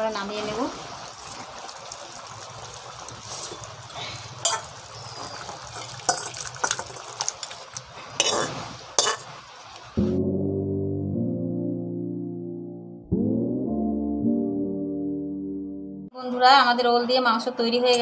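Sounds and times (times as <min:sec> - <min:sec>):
metal spoon scraping steel pot: 0:08.2 - 0:09.4
background music: 0:10.0 - 0:16.2.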